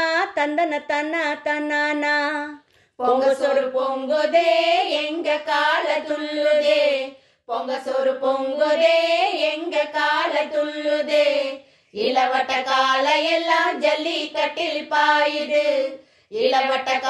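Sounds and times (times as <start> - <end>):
women singing folk song: 0.0 - 17.0.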